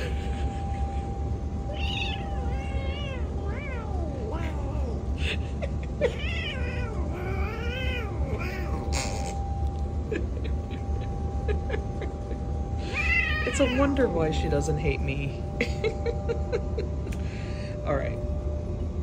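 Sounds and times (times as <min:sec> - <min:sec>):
faint hum: 0:00.0 - 0:19.0
cat meowing: 0:01.7 - 0:05.1, 0:06.0 - 0:09.4, 0:12.8 - 0:14.0.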